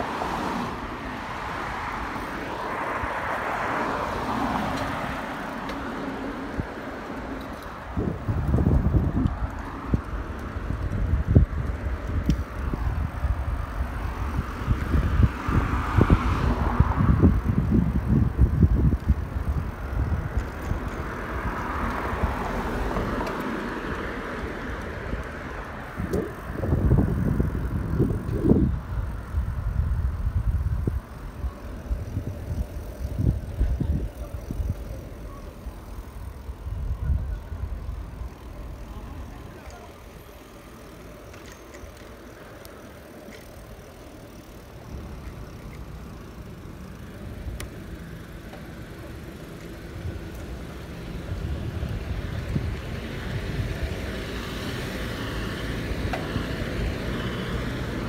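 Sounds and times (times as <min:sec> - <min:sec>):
road traffic passing: 0:00.0 - 0:58.0
wind buffeting microphone: 0:06.4 - 0:39.6, 0:49.9 - 0:58.0.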